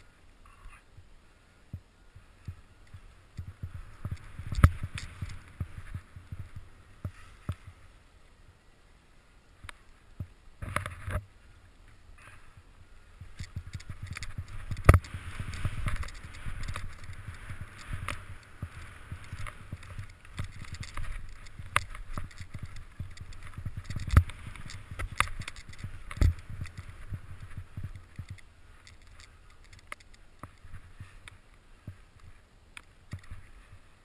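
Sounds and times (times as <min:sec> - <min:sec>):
skis hissing through snow: 0:03.8 - 0:08.0, 0:14.3 - 0:28.8.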